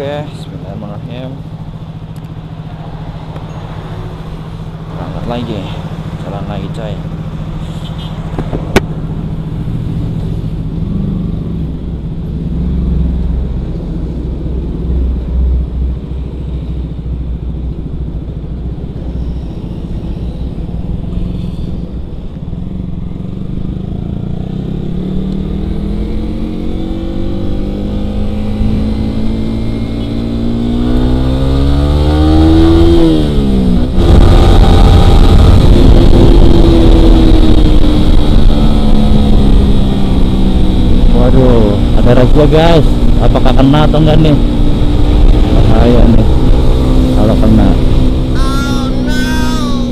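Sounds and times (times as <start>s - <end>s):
motorcycle engine revving: 0.0s - 49.9s
loud rushing wind: 32.0s - 41.2s.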